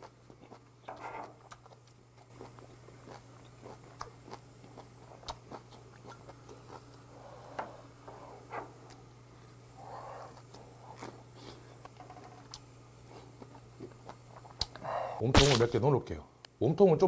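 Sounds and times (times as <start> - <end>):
wet chewing and crunching: 0.0 - 7.0
low steady hum: 0.0 - 17.0.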